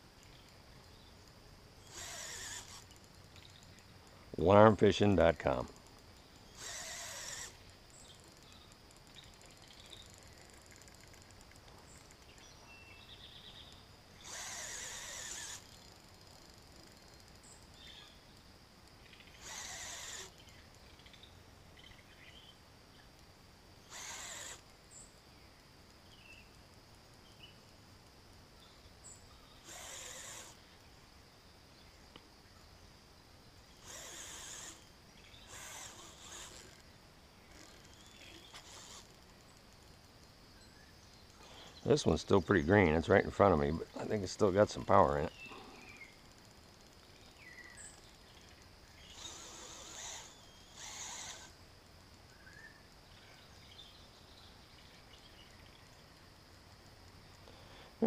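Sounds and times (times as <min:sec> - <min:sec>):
fishing reel motor whirring: 0:01.8 - 0:03.6, 0:05.4 - 0:12.2, 0:14.2 - 0:18.2, 0:19.2 - 0:20.4, 0:23.8 - 0:24.7, 0:29.6 - 0:30.6, 0:33.8 - 0:36.9, 0:37.5 - 0:39.4, 0:49.1 - 0:51.6.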